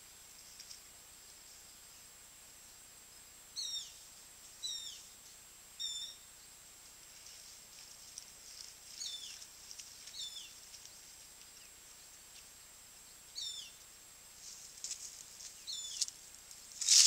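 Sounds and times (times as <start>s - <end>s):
faint hiss: 0.0s - 17.0s
bird calling: 3.6s - 4.0s, 4.6s - 5.1s, 5.8s - 6.3s, 9.0s - 9.5s, 10.1s - 10.6s, 13.4s - 13.8s, 15.6s - 16.1s.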